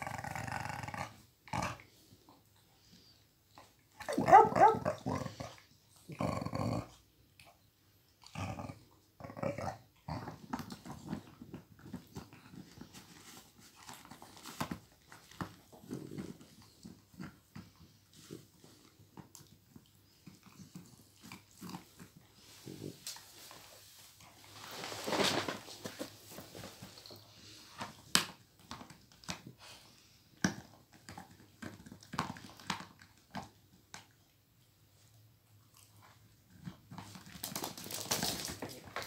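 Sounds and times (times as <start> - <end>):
dogs chewing rubber toy: 10.0 - 23.0, 26.9 - 34.2
rustling noise: 22.3 - 28.0.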